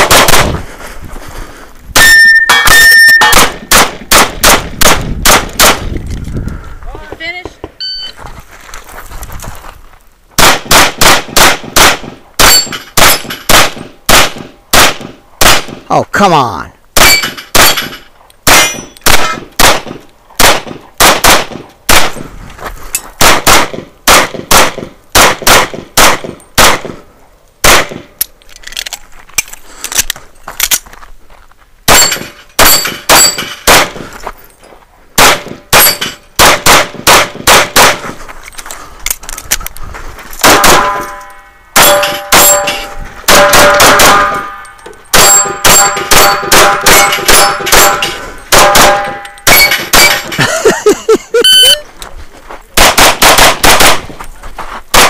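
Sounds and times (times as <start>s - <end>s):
rapid pistol fire: 0.0s - 0.6s, 3.2s - 5.8s, 10.4s - 15.8s, 17.0s - 22.2s, 23.2s - 27.0s, 27.6s - 28.1s, 31.9s - 34.0s, 35.2s - 38.0s, 41.8s - 44.5s, 45.2s - 50.3s, 52.8s - 54.0s
steel targets ringing: 2.0s - 3.4s, 35.8s - 36.2s, 40.4s - 50.4s.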